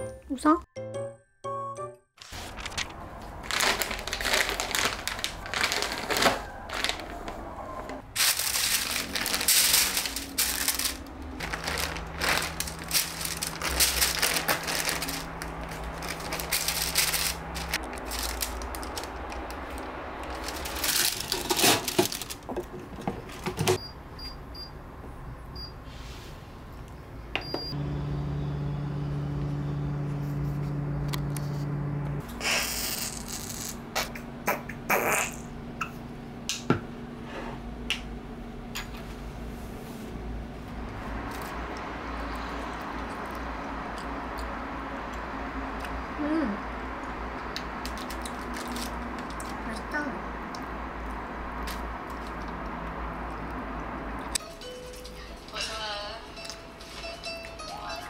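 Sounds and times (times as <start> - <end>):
plastic packaging crinkling: 2.2 - 7.4, 8.1 - 22.7, 47.8 - 49.6
air fryer humming: 27.0 - 32.4, 35.5 - 42.1.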